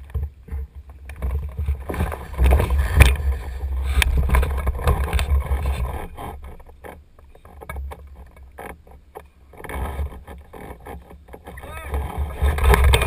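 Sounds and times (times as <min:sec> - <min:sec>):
wind buffeting microphone: 0:00.0 - 0:06.7, 0:11.5 - 0:13.0.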